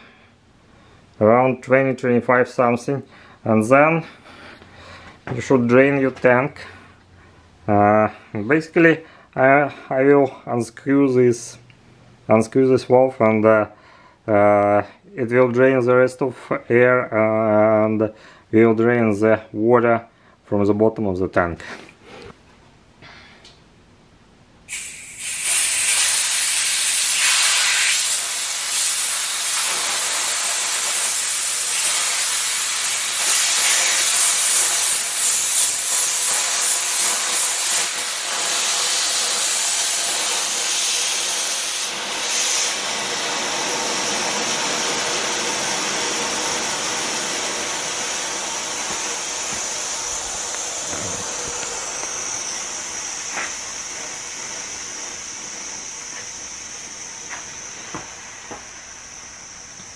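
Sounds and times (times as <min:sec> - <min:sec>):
air and water hissing from valve: 0:24.7 - 0:59.9.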